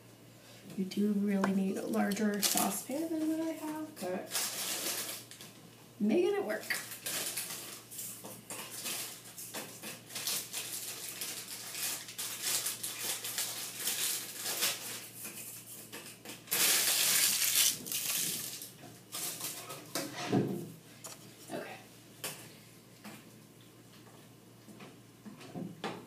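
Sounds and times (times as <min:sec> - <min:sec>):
crackers crunching: 0:01.9 - 0:05.6, 0:06.7 - 0:19.8.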